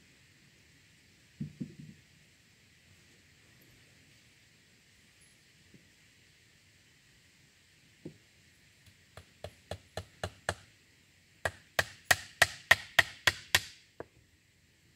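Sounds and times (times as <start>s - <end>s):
hammer driving nail into wood: 11.5s - 13.8s.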